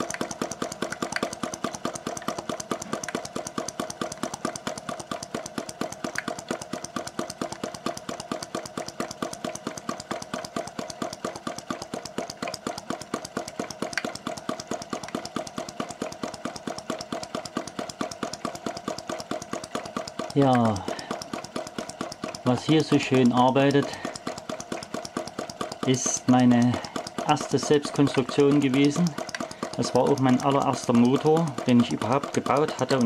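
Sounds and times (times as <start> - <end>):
hot-air engine knocking: 0.0 - 33.0.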